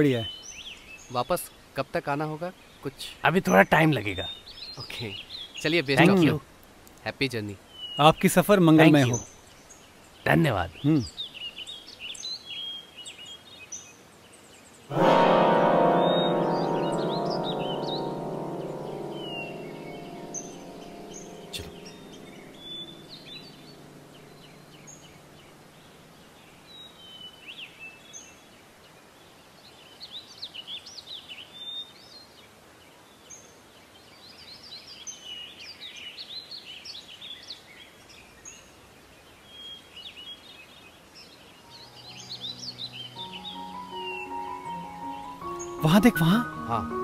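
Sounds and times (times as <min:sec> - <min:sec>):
small birds chirping: 0:00.0 - 0:14.9, 0:15.9 - 0:47.0
background music: 0:03.2 - 0:04.1, 0:05.9 - 0:06.4, 0:14.9 - 0:25.9, 0:41.7 - 0:47.0.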